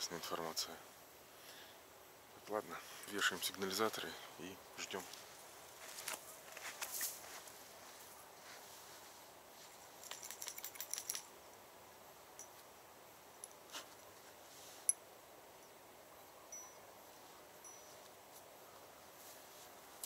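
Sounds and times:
low hiss: 0.0 - 20.0.

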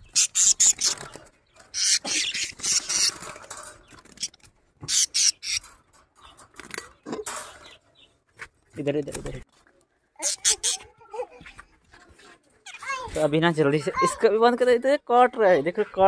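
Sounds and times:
parrots squawking: 0.0 - 3.4, 4.1 - 5.7, 10.2 - 10.9.

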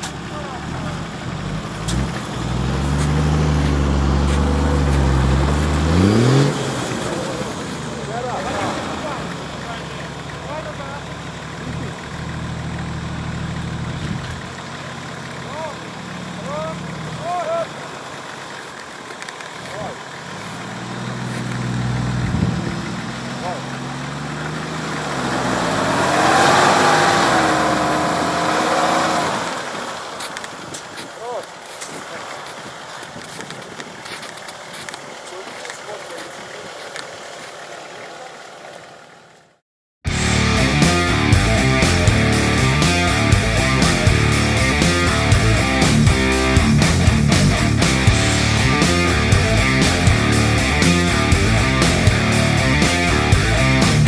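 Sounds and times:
engine revving hard: 0.0 - 11.0, 19.7 - 30.0, 40.1 - 54.0.

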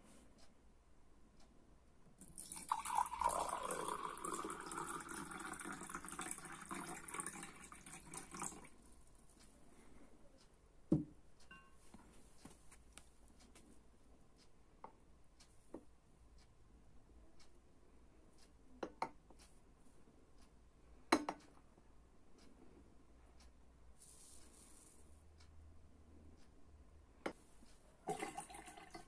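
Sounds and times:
water pouring into a glass: 2.2 - 8.7, 28.0 - 29.0.

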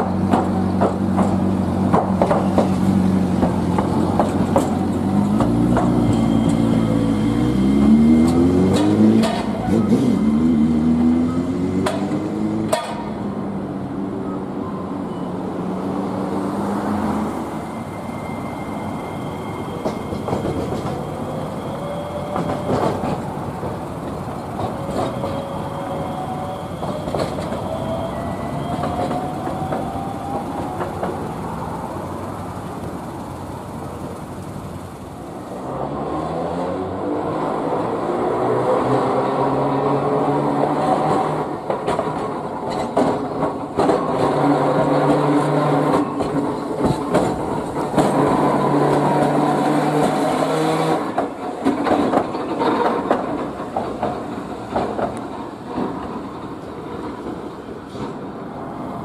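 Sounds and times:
rail clicks: 0.0 - 6.9, 18.5 - 35.2, 40.9 - 58.8
street noise: 0.0 - 59.0
tram motors whining: 0.0 - 59.0.

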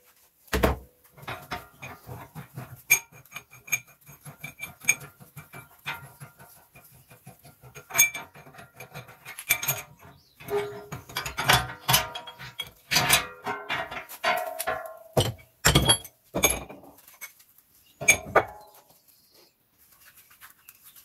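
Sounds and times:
metal clatter: 1.2 - 17.4, 18.0 - 18.7
metal knocks: 7.2 - 16.9, 18.0 - 18.6.

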